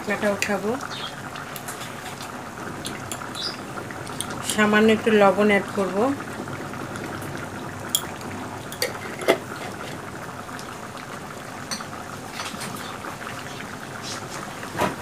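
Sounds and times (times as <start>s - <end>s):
curry bubbling in a pan: 0.0s - 15.0s.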